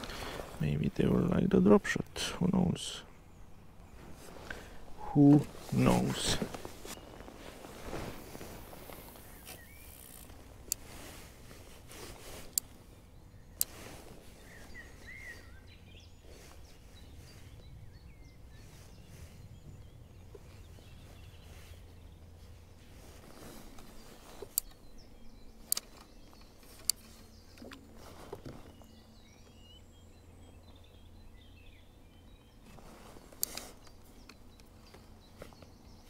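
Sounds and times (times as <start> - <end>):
faint bird chirps: 1.8 - 10.3, 12.9 - 36.0
fishing reel clicks: 9.8 - 10.3.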